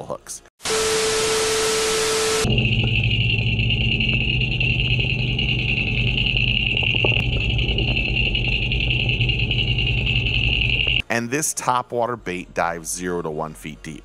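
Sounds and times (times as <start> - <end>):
high whine: 0.6 - 11.0
underwater mechanical hum: 1.6 - 11.0.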